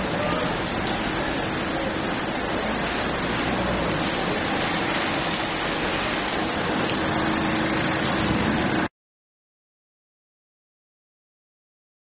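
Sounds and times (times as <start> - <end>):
heavy rain splashing into puddle: 0.0 - 8.9.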